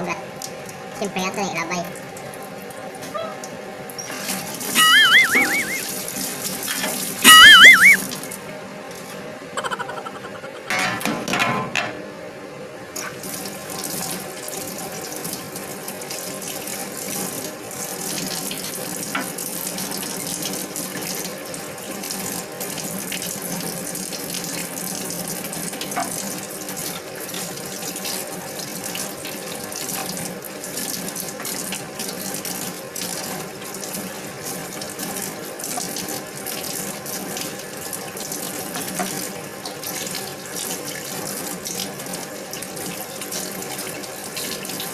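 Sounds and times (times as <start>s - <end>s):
tap water running into steel sink: 13.0s - 44.9s.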